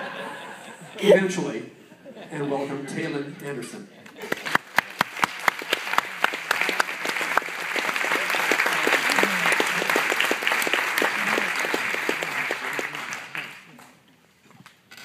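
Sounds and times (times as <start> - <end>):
audience applauding: 4.2 - 13.9.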